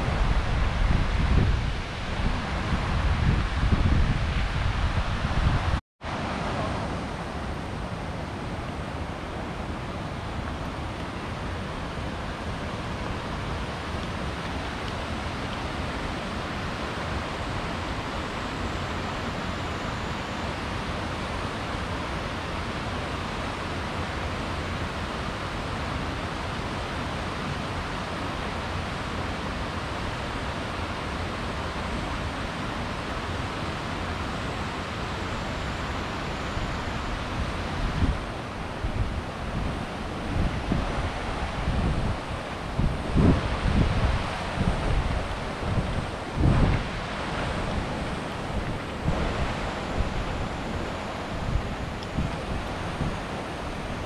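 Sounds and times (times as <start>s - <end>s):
wind buffeting microphone: 0.0s - 5.8s, 37.2s - 54.0s
river flowing over rocks: 6.1s - 54.0s.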